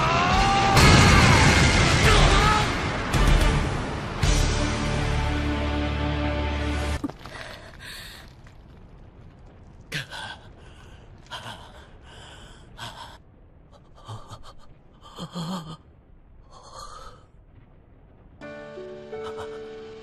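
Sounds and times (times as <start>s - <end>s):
person gasping for breath: 19.2s - 19.8s.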